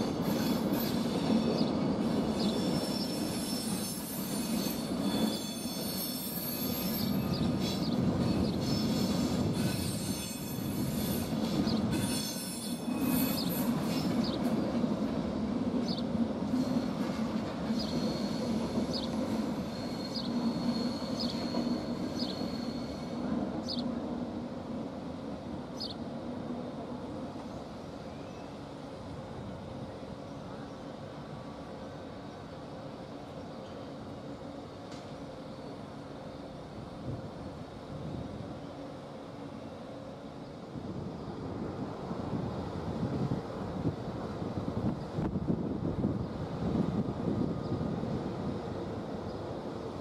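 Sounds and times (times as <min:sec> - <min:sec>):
train coaches rumbling: 0:00.0 - 0:50.0
high metallic squeals: 0:02.4 - 0:07.8, 0:08.6 - 0:14.1, 0:19.6 - 0:23.2.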